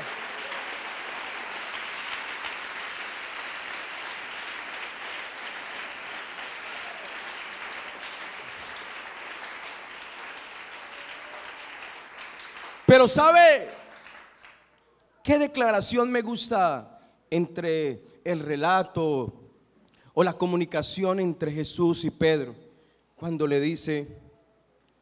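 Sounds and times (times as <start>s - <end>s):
congregation applauding: 0.0s - 14.8s.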